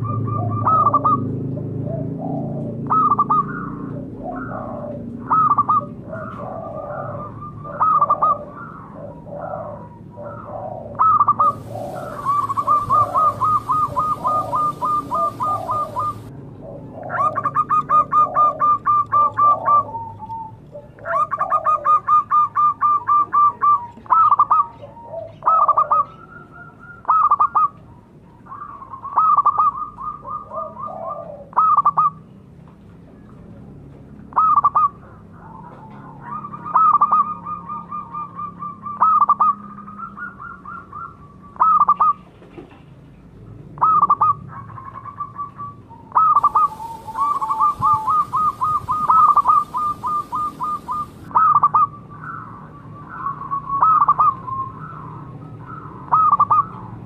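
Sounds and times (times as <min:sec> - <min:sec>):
dove cooing: 0:00.0 - 0:27.9, 0:28.5 - 0:32.2, 0:34.3 - 0:42.4, 0:43.8 - 0:57.0.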